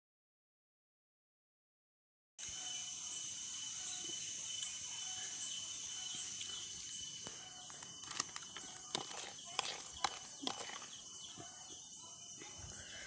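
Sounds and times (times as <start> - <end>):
thin whistle-like tone: 2.4 - 9.6
insect chorus: 2.4 - 13.0.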